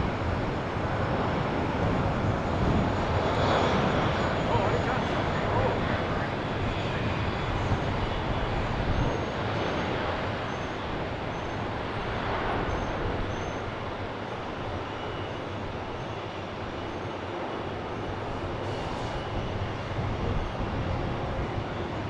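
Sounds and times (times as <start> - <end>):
jet engines rumbling: 0.0 - 22.0.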